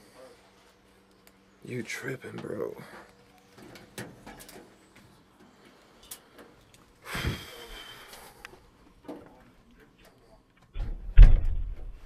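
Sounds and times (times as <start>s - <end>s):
door thud: 10.8s - 12.0s.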